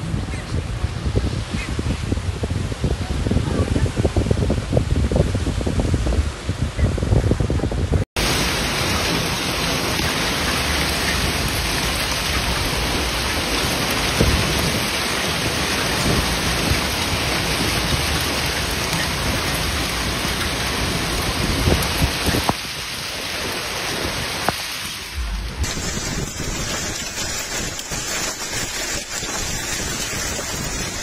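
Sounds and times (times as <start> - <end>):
hail and rain pelting: 8.2 - 31.0
single hailstones hitting: 25.2 - 31.0.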